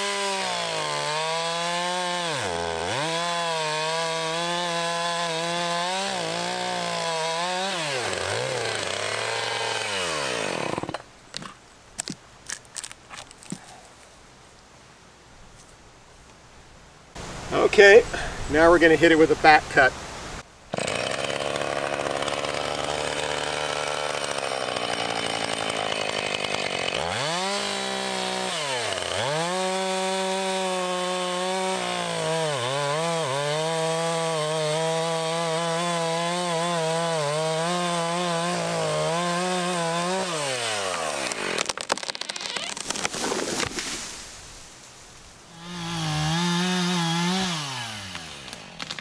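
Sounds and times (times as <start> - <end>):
chainsaw cutting wood: 0.0 - 12.2, 20.7 - 44.2, 45.5 - 49.0
wood cracking: 7.3 - 14.0, 20.8 - 44.2, 46.2 - 49.0.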